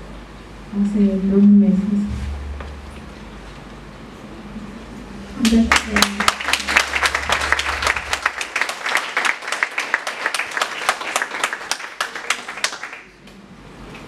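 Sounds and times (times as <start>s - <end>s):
audience applauding: 5.4s - 13.2s.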